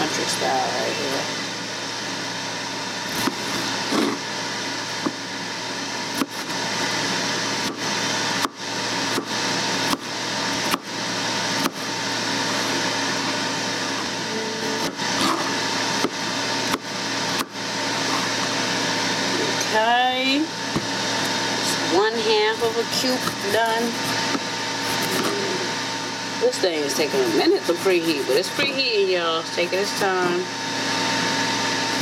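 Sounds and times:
steady mechanical hum: 0.0s - 32.0s
knife chopping on cutting board: 3.1s - 4.2s, 7.6s - 10.9s, 11.6s - 11.9s.

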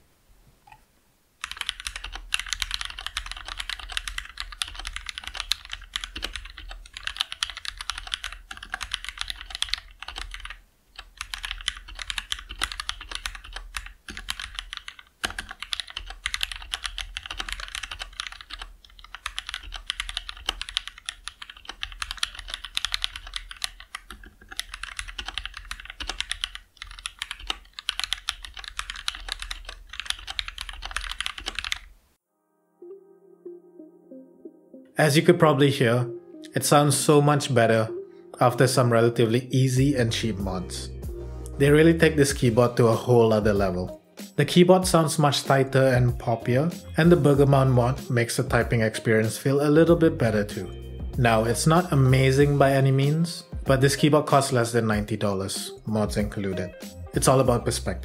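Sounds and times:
fast typing on mechanical keyboard: 1.4s - 31.9s.

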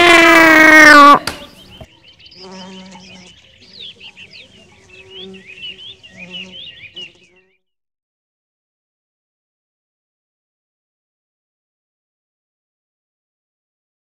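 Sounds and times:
small birds chirping: 1.1s - 7.6s.

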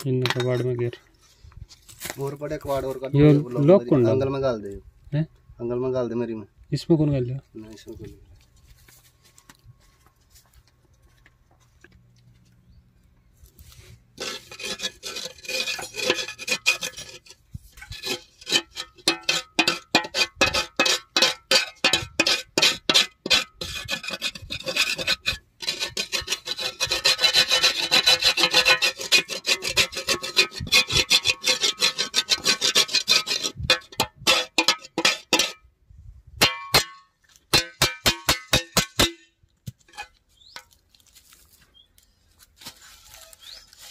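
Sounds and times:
scraping sheet metal: 13.7s - 35.6s
sharp taps on metal: 36.4s - 40.7s.

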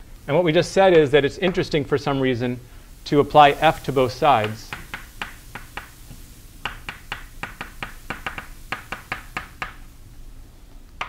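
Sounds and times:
chalk tapping on blackboard: 3.6s - 9.9s.

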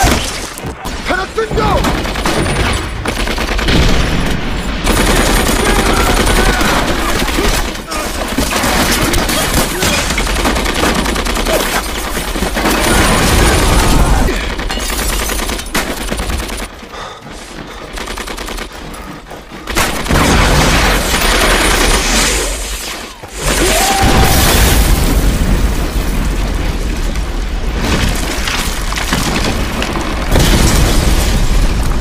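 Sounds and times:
dense continuous gunfire: 0.0s - 32.0s
machine-gun fire: 1.8s - 16.7s.

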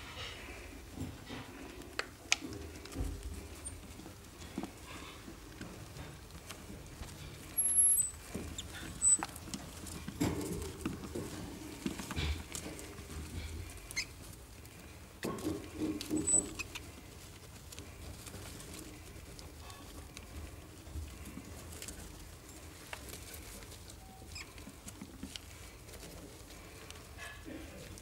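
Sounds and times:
rats scrabbling in bedding: 0.0s - 28.0s
small clicks and patter: 0.2s - 28.0s
rats squeaking: 7.2s - 10.4s, 12.2s - 14.3s, 15.2s - 17.2s, 23.9s - 25.7s.

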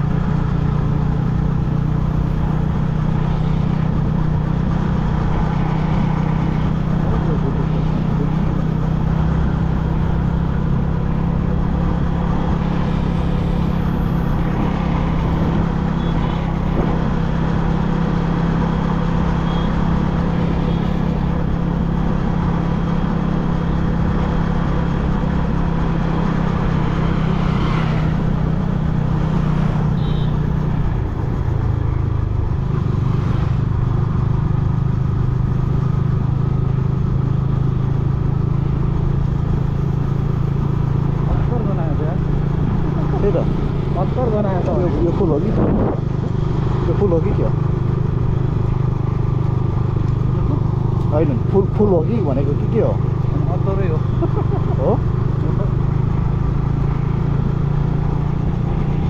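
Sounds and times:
motorcycle engine running: 0.0s - 59.0s
rushing wind noise: 42.6s - 46.9s.

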